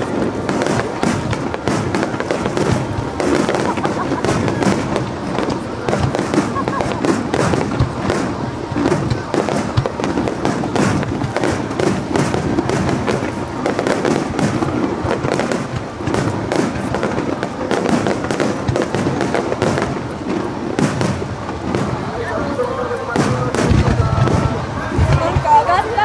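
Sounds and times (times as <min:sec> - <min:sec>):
fireworks bursting: 0:00.0 - 0:26.0.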